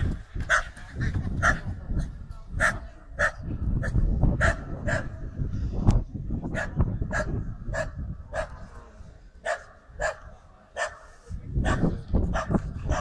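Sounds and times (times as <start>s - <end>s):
dog barking: 2.6s - 3.4s, 4.4s - 5.1s, 6.6s - 8.6s, 9.4s - 13.0s.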